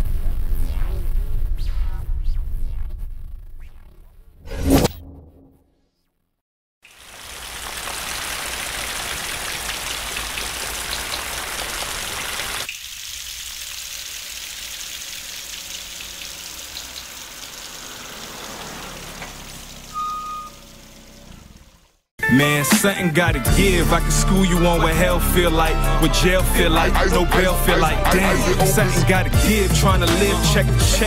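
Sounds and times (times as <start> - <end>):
steady rain falling: 6.8 - 22.0.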